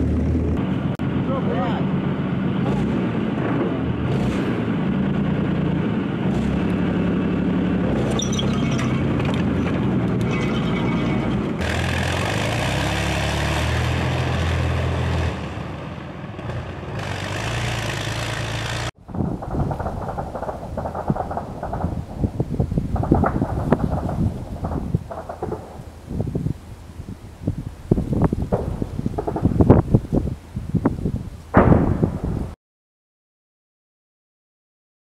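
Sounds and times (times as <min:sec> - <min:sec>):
armoured vehicle engine hum: 0:00.0 - 0:26.0.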